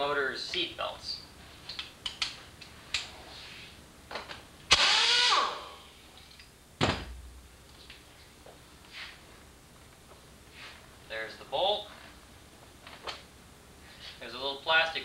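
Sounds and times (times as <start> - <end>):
pneumatic air tool whirring: 4.7 - 5.9.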